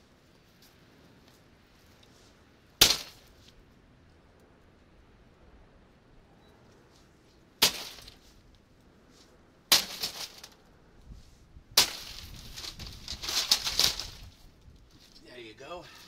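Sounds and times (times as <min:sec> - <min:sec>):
axe smashing plastic: 0:02.8 - 0:03.2, 0:07.6 - 0:08.2, 0:09.7 - 0:10.5, 0:11.8 - 0:14.2.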